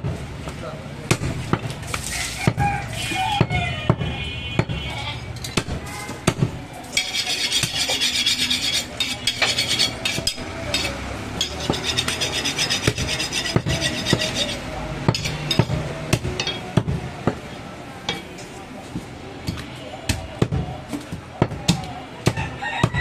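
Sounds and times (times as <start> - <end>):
rasping scraping sound: 6.9 - 15.7.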